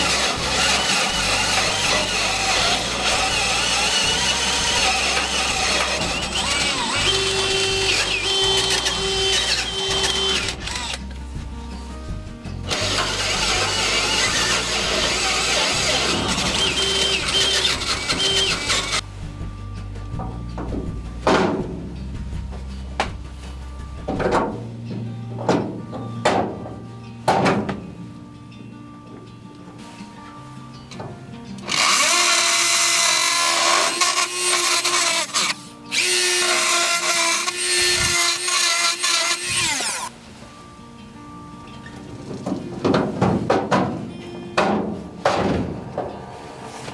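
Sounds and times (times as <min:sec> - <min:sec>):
cordless drill boring sheet metal: 0:00.0 - 0:11.0, 0:12.7 - 0:19.0, 0:31.6 - 0:40.1
rotary tool grinding metal: 0:00.0 - 0:11.0, 0:12.7 - 0:19.0, 0:31.6 - 0:40.1.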